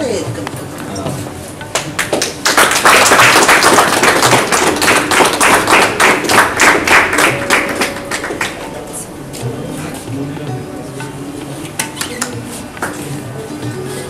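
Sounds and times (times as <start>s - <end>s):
people applauding: 1.7s - 8.8s.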